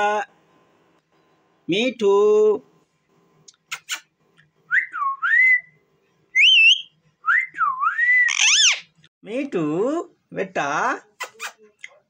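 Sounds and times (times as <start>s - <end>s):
parakeet whistling: 6.4s - 8.9s.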